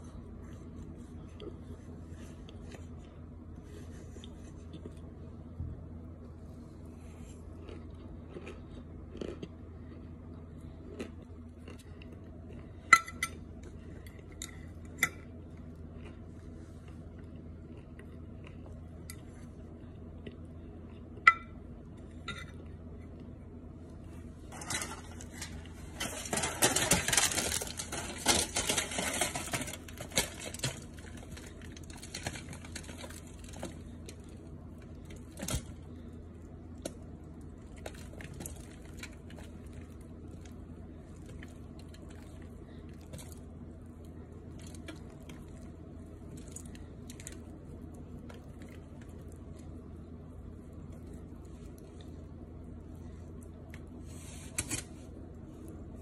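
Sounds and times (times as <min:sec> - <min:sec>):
dense crackling crunch: 0:24.4 - 0:36.0.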